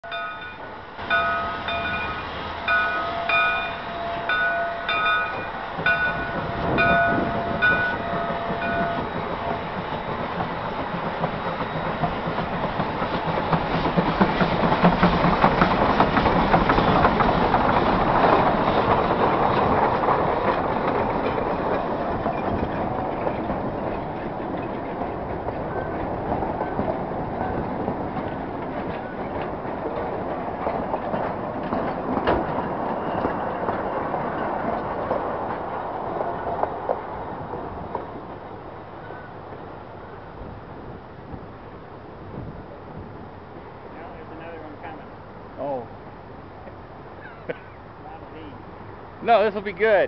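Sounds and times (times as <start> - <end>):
locomotive bell ringing: 0.0 - 9.8, 25.6 - 29.3
locomotive running gear: 0.0 - 39.6.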